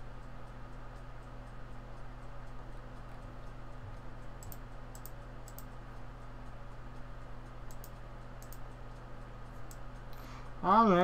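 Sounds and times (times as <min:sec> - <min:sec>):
low electrical hum: 0:00.0 - 0:11.0
computer mouse clicks: 0:04.2 - 0:05.8, 0:07.6 - 0:08.8.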